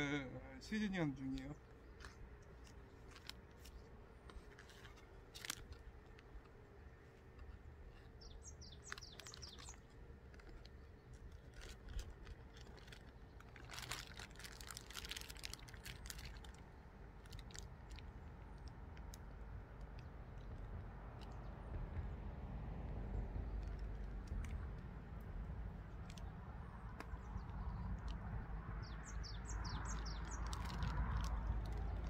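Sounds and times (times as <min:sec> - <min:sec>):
low steady rumble: 0:00.0 - 0:32.0
small clicks and crackles: 0:00.7 - 0:32.0
bird chirping: 0:07.4 - 0:11.7, 0:27.0 - 0:31.1.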